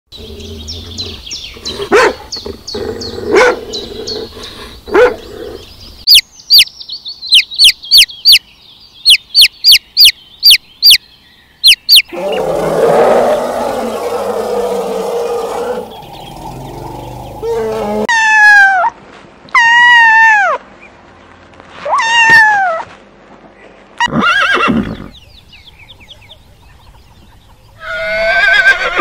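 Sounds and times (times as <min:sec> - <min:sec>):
dog barking: 0:01.9 - 0:02.3, 0:03.3 - 0:03.6, 0:04.9 - 0:05.2
chick peeping: 0:06.1 - 0:08.4, 0:09.0 - 0:11.0, 0:11.6 - 0:12.0
loud rough animal call: 0:12.1 - 0:18.1.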